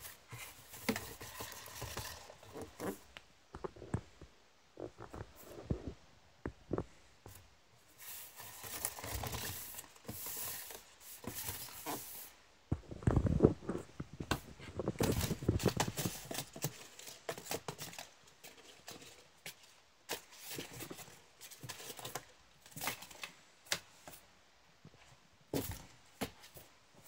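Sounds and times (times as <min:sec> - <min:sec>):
paper balls rustling in box: 0:00.0 - 0:04.2, 0:07.9 - 0:23.4.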